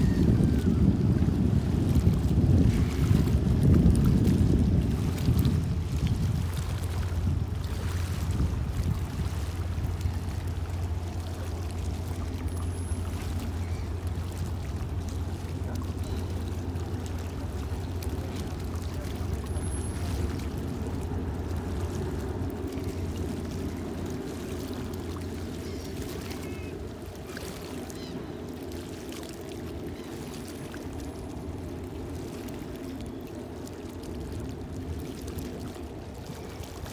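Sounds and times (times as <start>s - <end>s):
rushing water: 0.0s - 36.9s
ferry engines rumbling: 4.4s - 36.9s.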